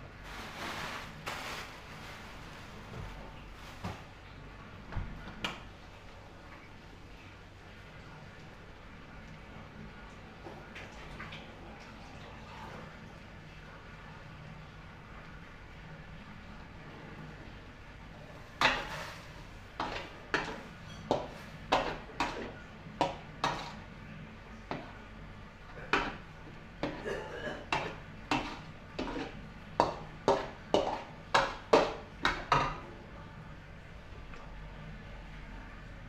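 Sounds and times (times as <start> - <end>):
faint hum: 0.0 - 36.0
metal spatula scraping a wok: 18.6 - 22.6, 23.4 - 23.8, 27.7 - 31.6.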